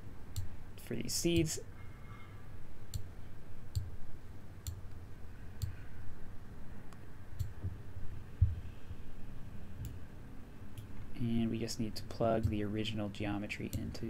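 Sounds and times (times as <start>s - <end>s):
computer mouse clicking: 7.4s - 7.8s.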